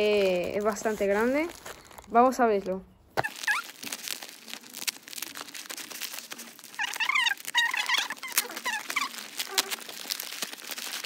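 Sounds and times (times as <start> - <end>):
paper and tape tearing: 0.0 - 2.1, 3.2 - 11.0
short high squeaks: 3.2 - 3.9, 6.7 - 9.8.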